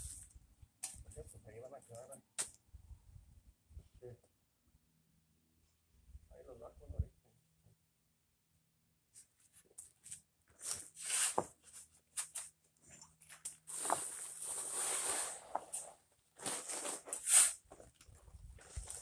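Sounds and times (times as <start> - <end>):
shovel scraping sand on pavers: 10.6 - 12.5, 13.6 - 17.7.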